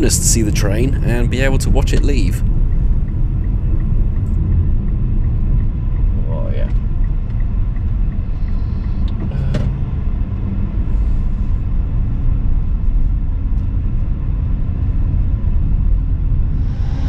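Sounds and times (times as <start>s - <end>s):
diesel locomotives idling: 0.0s - 4.3s.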